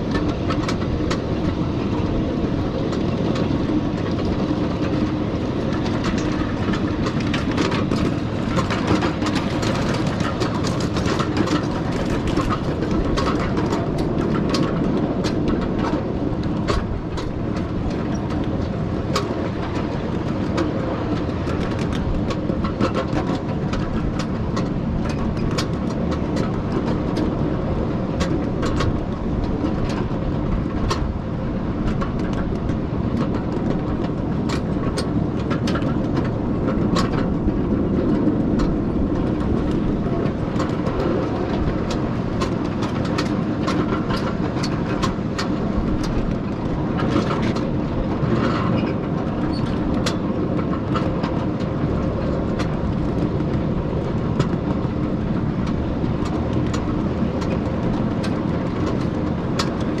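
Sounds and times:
miniature train wheels rumbling: 0.0 - 60.0
wheels clicking over rail joints: 0.0 - 60.0.

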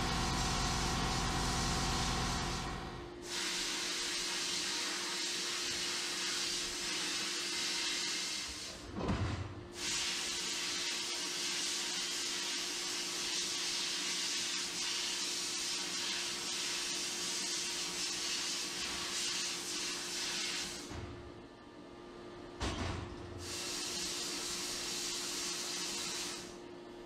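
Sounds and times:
sandblaster nozzle hissing: 0.0 - 2.6, 9.8 - 12.5, 13.2 - 20.9, 23.4 - 26.5.

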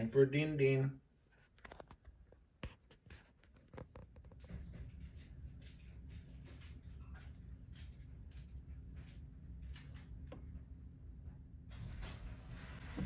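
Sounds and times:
low steady hum: 4.3 - 13.0.

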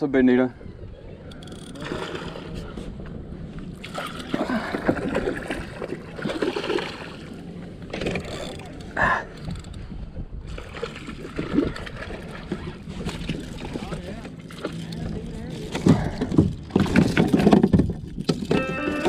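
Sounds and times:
fish thrashing water splashing: 3.8 - 7.4, 10.5 - 13.8.

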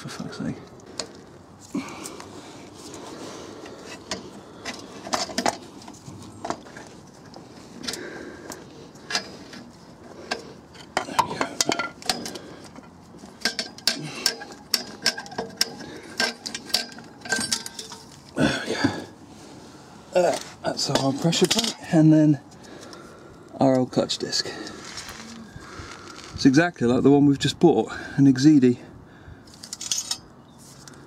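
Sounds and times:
metallic clinks and knocks: 10.3 - 18.2.

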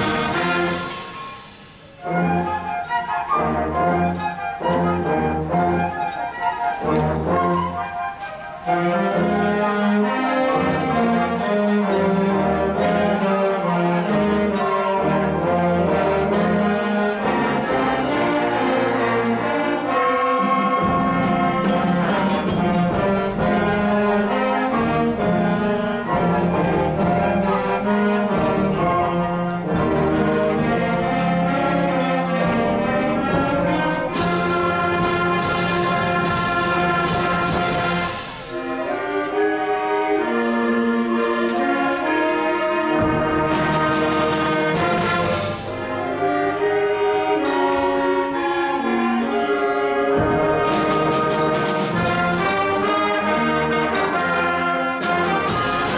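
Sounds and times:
sharp percussion strokes: 0.0 - 2.5
concert band playing: 0.0 - 55.9.

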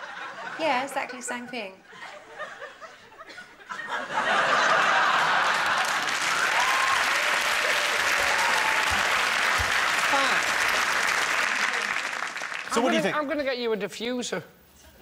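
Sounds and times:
audience applause: 4.5 - 13.1.

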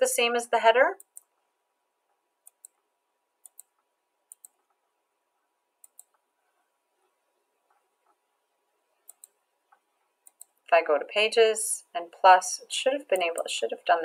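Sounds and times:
computer mouse clicking: 1.0 - 1.4, 2.4 - 2.8, 3.4 - 4.8, 5.8 - 6.2, 9.0 - 10.7, 13.1 - 13.5.

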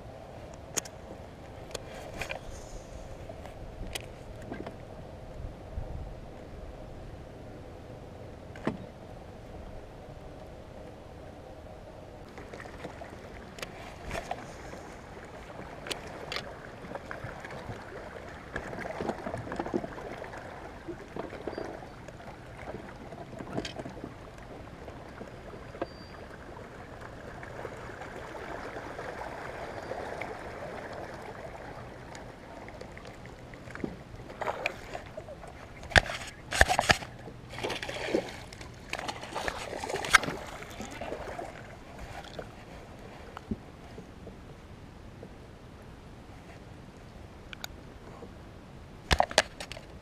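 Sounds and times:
water lapping against boat hull: 12.2 - 45.4.

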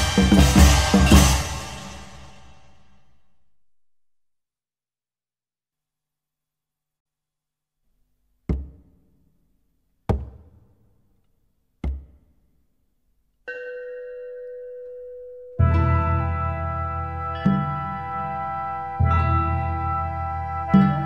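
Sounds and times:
heavy drum hits: 0.0 - 2.9
held musical chord: 0.0 - 3.1, 14.4 - 21.0.

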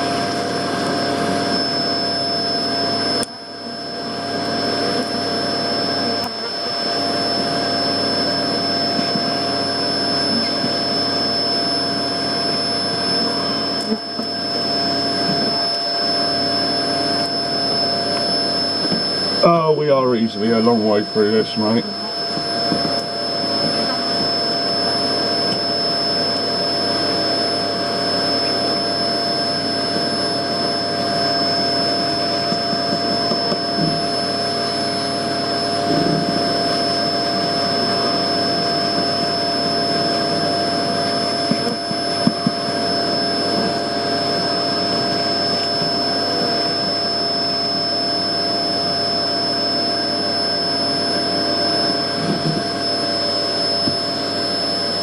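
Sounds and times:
vacuum motor whining: 0.0 - 55.0.

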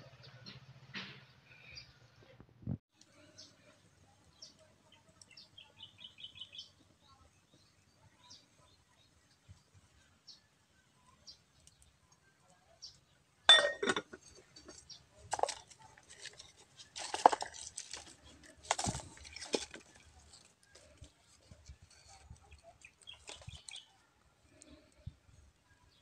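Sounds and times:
firewood sticks clinking: 13.5 - 20.9.

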